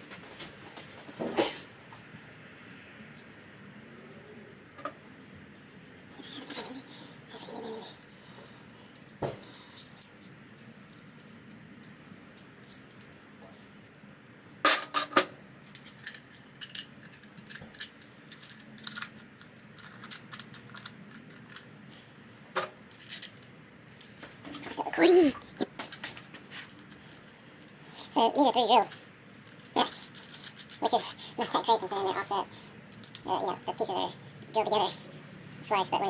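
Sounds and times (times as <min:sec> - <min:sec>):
small metal parts clinking: 0:05.1 - 0:14.1, 0:14.7 - 0:21.8, 0:22.9 - 0:23.5, 0:25.8 - 0:32.1, 0:32.8 - 0:35.6.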